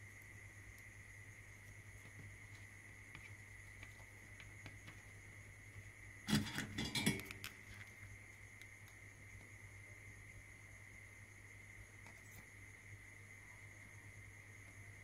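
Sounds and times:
faint ticks from handling wire: 0.0 - 15.0
light metal clatter: 6.3 - 7.9.

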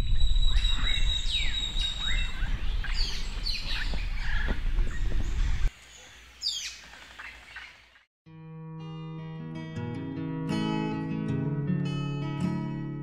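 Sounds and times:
birds calling: 0.0 - 8.1.

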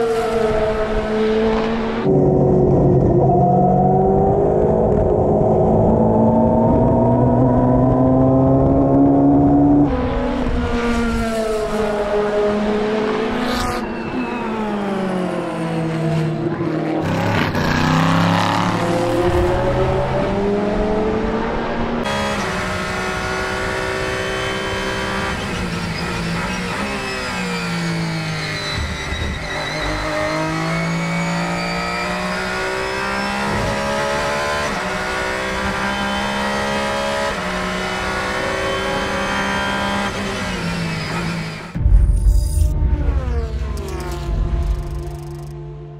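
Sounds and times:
racing car engine revving: 0.0 - 45.9
racing cars passing by: 5.8 - 29.0.

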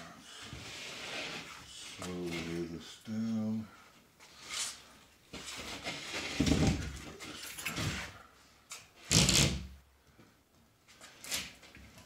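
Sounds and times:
wooden sheet scraping on frame: 0.5 - 1.6, 5.4 - 8.1.

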